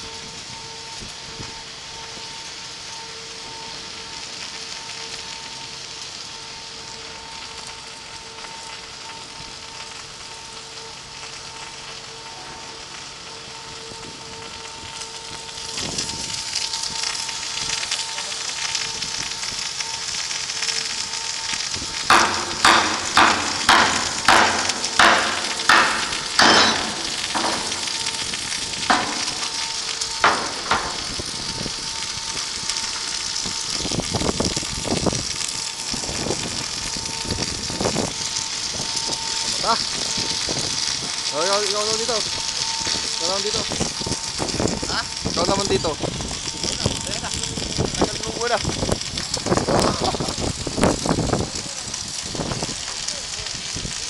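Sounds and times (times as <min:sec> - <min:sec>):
rain hissing: 0:00.0 - 0:54.0
sharp knocks: 0:22.1 - 0:27.9.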